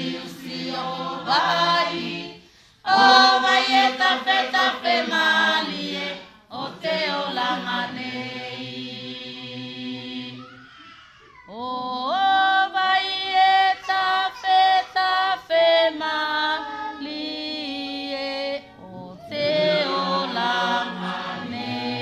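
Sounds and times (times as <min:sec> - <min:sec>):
choir singing a hymn: 0:00.0 - 0:10.5, 0:11.7 - 0:13.7, 0:15.4 - 0:22.0
high voice singing: 0:18.8 - 0:21.1.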